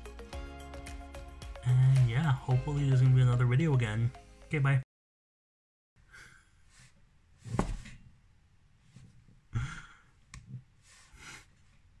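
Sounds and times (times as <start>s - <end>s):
person breathing and sighing: 1.6s - 2.2s, 9.5s - 10.2s.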